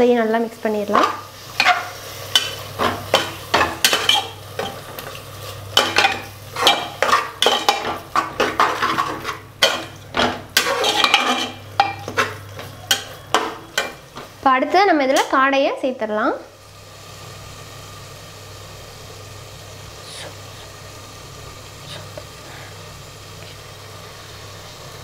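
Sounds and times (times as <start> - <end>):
metal spatula scraping a pot: 1.0 - 14.0.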